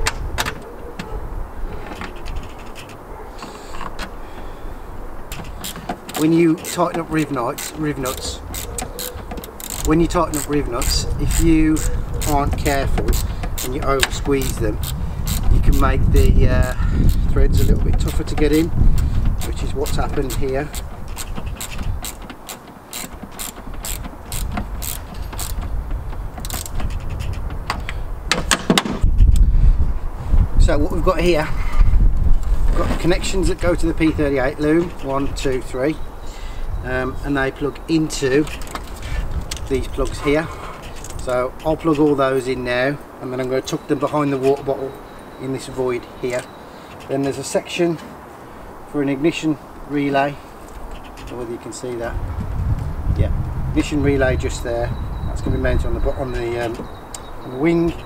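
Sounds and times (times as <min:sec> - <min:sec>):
bolt and metal bracket clicking: 0:01.8 - 0:03.1, 0:05.2 - 0:15.8, 0:16.6 - 0:29.4, 0:40.8 - 0:42.5.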